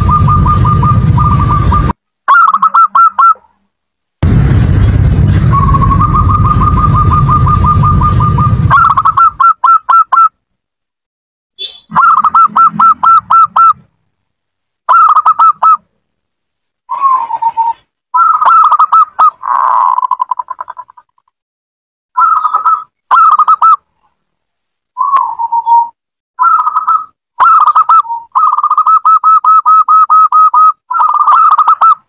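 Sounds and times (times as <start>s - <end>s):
loud rushing noise with rumble: 0.0s - 2.0s, 4.2s - 9.2s
dove cooing: 0.0s - 3.4s, 5.6s - 10.3s, 11.9s - 13.8s, 16.9s - 21.0s, 22.2s - 23.8s, 25.0s - 32.0s.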